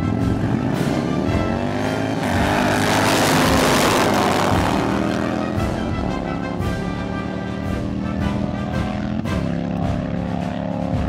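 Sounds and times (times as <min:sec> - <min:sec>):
background music: 0:00.0 - 0:11.0
motorcycle engines revving: 0:00.0 - 0:11.0.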